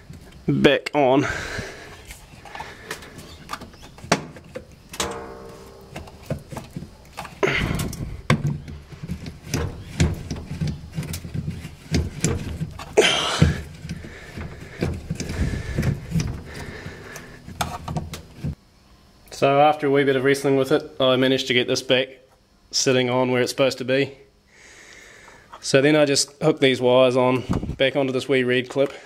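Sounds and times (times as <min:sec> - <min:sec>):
scraping clunks: 0:02.4 - 0:18.6
knocks clicks and scraping of motor: 0:05.9 - 0:18.6.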